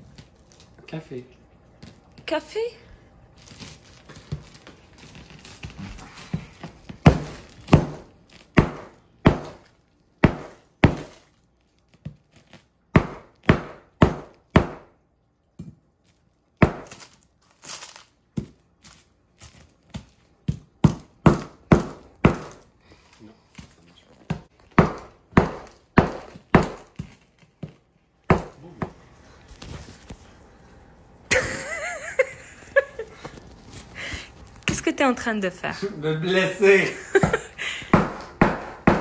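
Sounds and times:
knife handle pounding sugar loaf: 0:06.9 - 0:11.3, 0:12.9 - 0:15.0, 0:16.6 - 0:17.0, 0:20.0 - 0:22.7, 0:24.2 - 0:29.0, 0:37.2 - 0:39.0.

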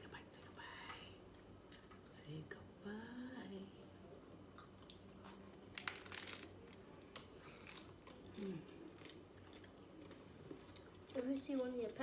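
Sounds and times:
taco shells crunching: 0:04.5 - 0:11.7.

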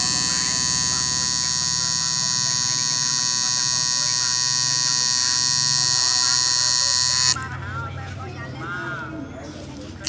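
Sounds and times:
tattoo machine buzzing: 0:00.0 - 0:07.4.

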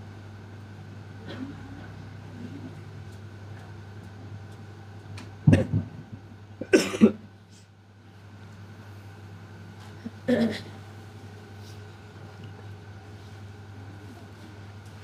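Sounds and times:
steady low hum: 0:00.0 - 0:15.0
man coughing: 0:06.6 - 0:07.2, 0:10.2 - 0:10.7.

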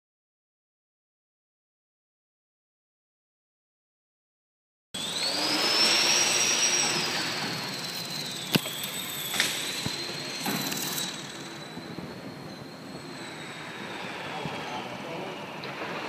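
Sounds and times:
model plane motor whining: 0:05.0 - 0:16.0.

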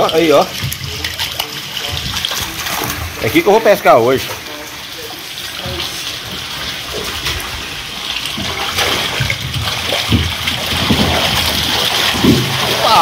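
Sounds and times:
rushing water: 0:00.0 - 0:13.0
low thumps: 0:08.3 - 0:12.8.

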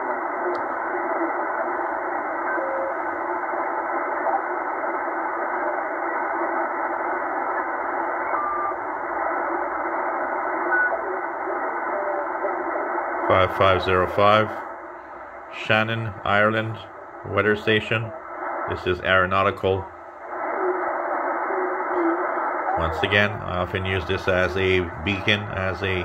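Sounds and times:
radio static hiss: 0:00.0 - 0:26.0
radio whistle tones: 0:07.4 - 0:08.9, 0:10.6 - 0:12.6.

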